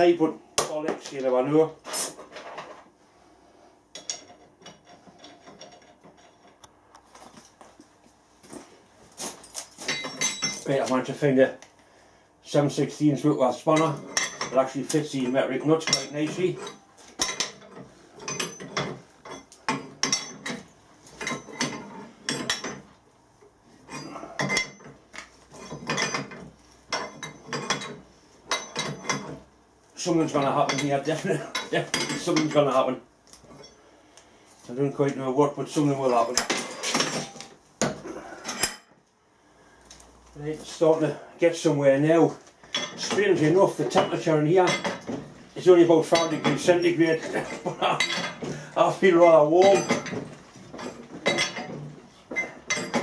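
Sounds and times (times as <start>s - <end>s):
metal tools clinking: 4.0s - 6.7s, 9.3s - 11.0s, 13.7s - 22.9s, 23.9s - 29.4s, 30.3s - 32.8s, 33.4s - 33.8s, 36.0s - 37.6s, 42.7s - 45.2s, 46.0s - 53.0s
ring spanner clinking on nuts: 9.6s - 10.8s, 15.3s - 22.8s, 50.8s - 53.0s.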